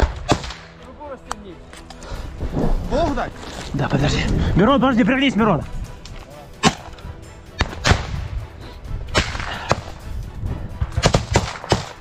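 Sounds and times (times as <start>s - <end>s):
gunshots: 0.0s - 0.7s, 10.9s - 12.0s.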